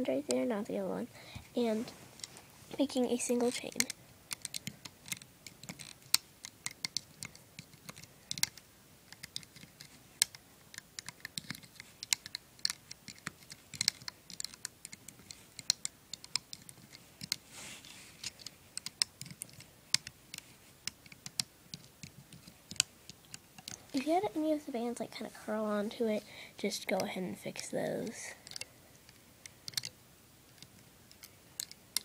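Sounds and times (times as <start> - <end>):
hook clicking on plastic pegs: 3.4 - 17.4, 18.2 - 23.8, 28.4 - 32.0
brief rustling scrape: 17.4 - 18.4.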